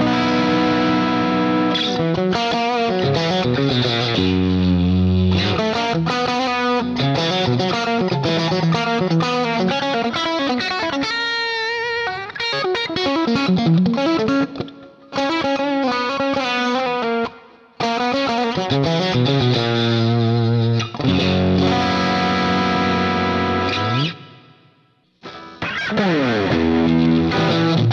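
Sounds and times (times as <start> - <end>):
distorted electric guitar lead: 0.0 - 27.9.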